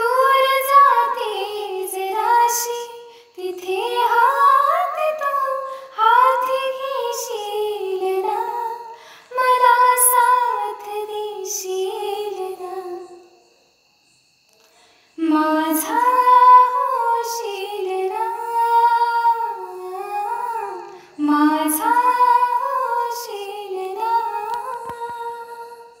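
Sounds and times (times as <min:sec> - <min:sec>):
woman singing slow melody: 0:00.0 - 0:13.4, 0:15.1 - 0:26.0.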